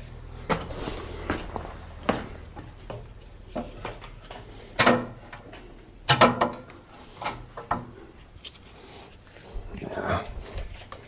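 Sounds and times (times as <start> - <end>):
metal clunks and knocks: 1.3 - 8.1.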